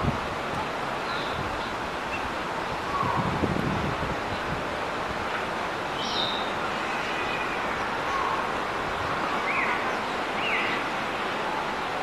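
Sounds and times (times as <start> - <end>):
wind noise on microphone: 0.0 - 6.6.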